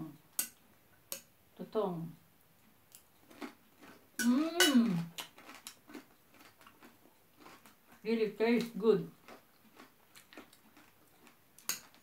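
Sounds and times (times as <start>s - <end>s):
crunchy rice being eaten: 3.2s - 8.0s, 9.1s - 12.0s
person humming mmm: 4.2s - 5.1s.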